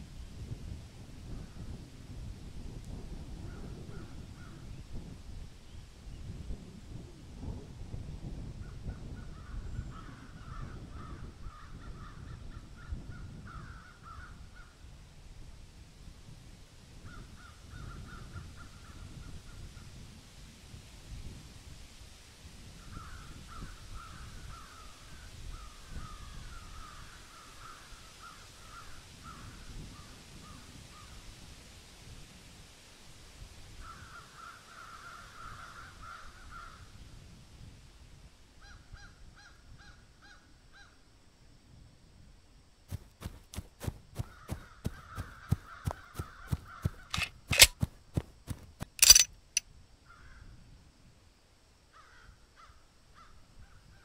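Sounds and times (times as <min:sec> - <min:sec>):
crows cawing: 0:13.5 - 0:14.7, 0:25.6 - 0:29.4, 0:33.8 - 0:36.8, 0:44.2 - 0:47.2, 0:51.9 - 0:53.3.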